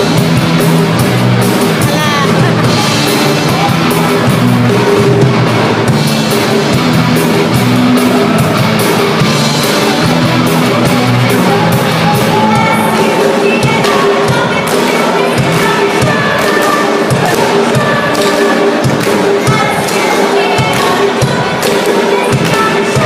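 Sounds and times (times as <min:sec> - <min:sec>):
bass guitar: 0:00.0 - 0:19.9
drum kit beat: 0:00.0 - 0:23.0
electric guitars: 0:00.0 - 0:23.0.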